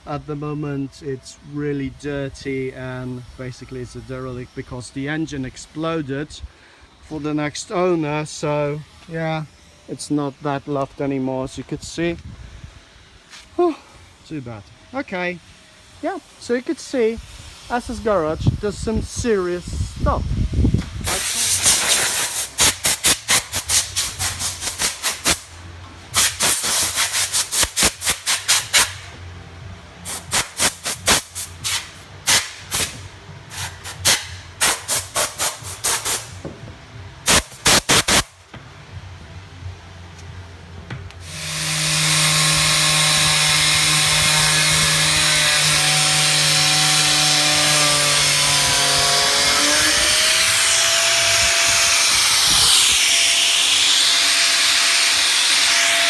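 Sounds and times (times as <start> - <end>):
steady air hiss with whistling: 0.2 - 25.6
compressed air blasts: 16.9 - 29.1, 30.0 - 36.5, 37.2 - 38.4, 41.2 - 47.0.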